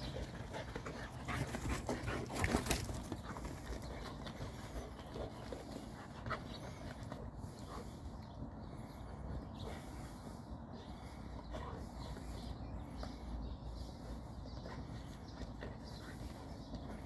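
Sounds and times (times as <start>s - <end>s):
dogs scuffling and thudding: 0.0s - 6.6s
dogs panting: 0.0s - 17.0s.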